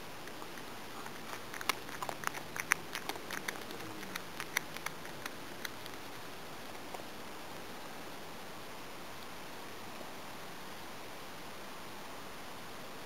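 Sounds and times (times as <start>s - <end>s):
cat chewing with crunches: 0.1s - 7.7s.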